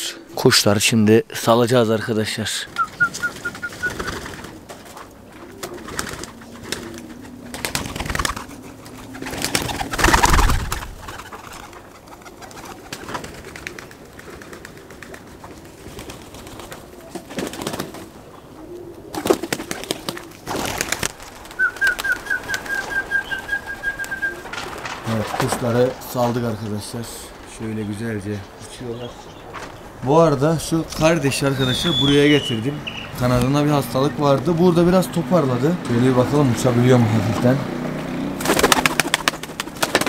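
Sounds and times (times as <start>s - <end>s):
pigeons cooing: 1.9s - 40.0s
wings flapping: 2.5s - 32.5s, 38.1s - 40.0s.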